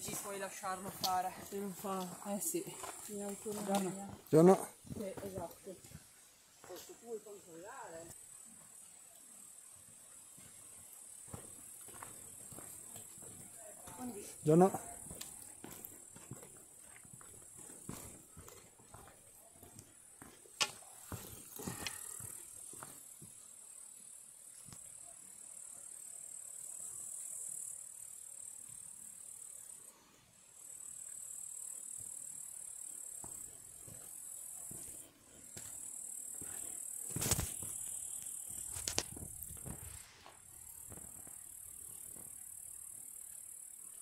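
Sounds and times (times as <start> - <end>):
footsteps on rocky path: 0.0 - 7.0, 9.9 - 23.4, 33.2 - 42.4.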